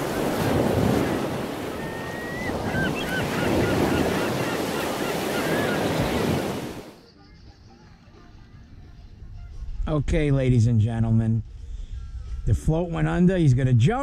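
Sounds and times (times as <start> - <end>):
ocean waves washing in: 0.0 - 7.0.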